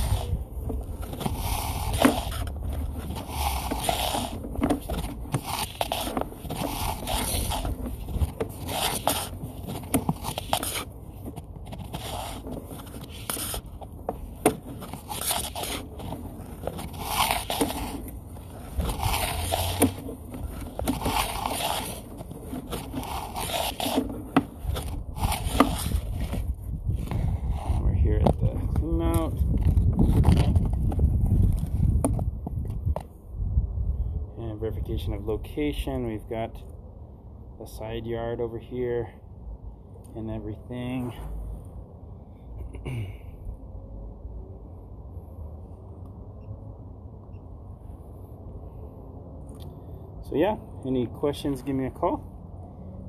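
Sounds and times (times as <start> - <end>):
cable scraping in pipe: 0.0 - 31.6.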